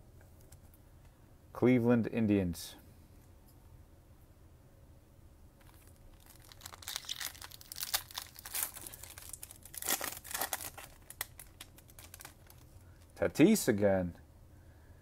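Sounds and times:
foil wrapper tearing and crinkling: 0:05.6 - 0:13.1.

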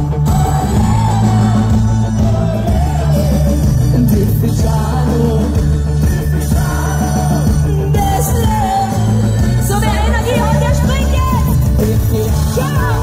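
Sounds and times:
live pop band over pa: 0:00.0 - 0:13.0
woman singing into microphone: 0:07.7 - 0:13.0.

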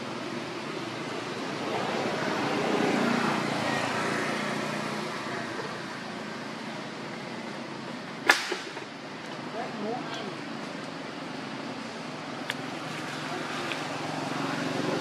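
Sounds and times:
rushing outdoor background noise: 0:00.0 - 0:15.0.

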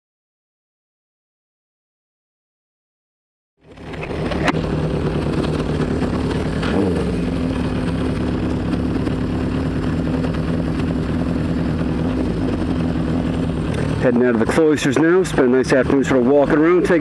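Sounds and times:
motorcycle engine idling: 0:03.6 - 0:17.0.

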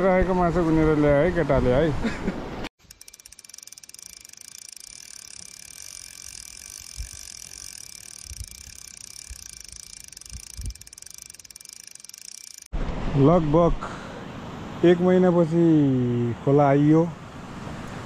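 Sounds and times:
fishing reel ratchet clicking: 0:02.8 - 0:12.7.

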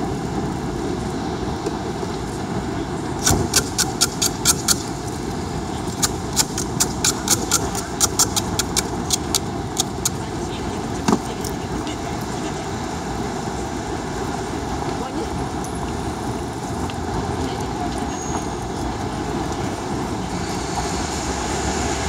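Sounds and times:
street traffic noise: 0:00.0 - 0:22.0
spray can ball rattling: 0:06.0 - 0:10.2.

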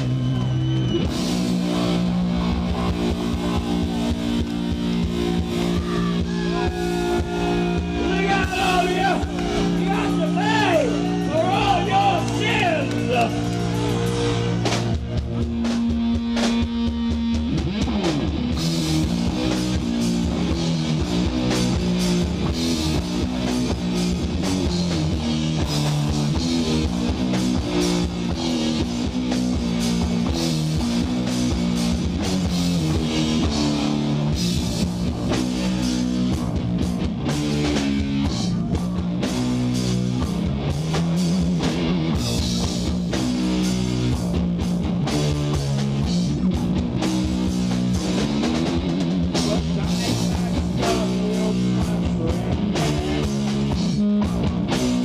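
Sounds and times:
guitar slide: 0:00.0 - 0:16.6
bass guitar riffing: 0:00.0 - 0:55.0
distorted electric guitar riffing: 0:00.0 - 0:55.0
drum kit: 0:00.0 - 0:55.0.

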